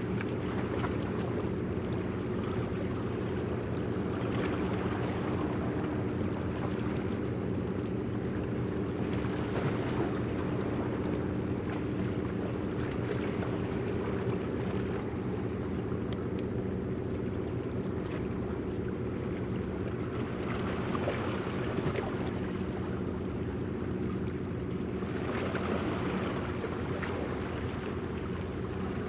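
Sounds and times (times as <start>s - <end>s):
ship engine hum: 0.0s - 29.0s
wind and water rushing: 0.0s - 29.0s.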